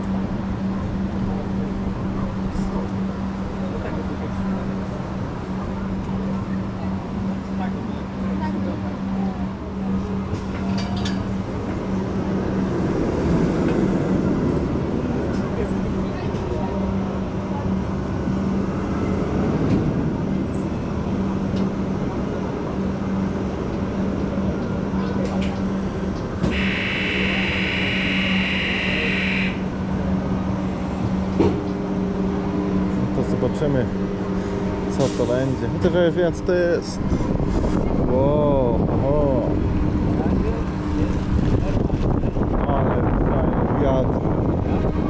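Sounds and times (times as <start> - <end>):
ride warning buzzer: 26.5 - 29.7.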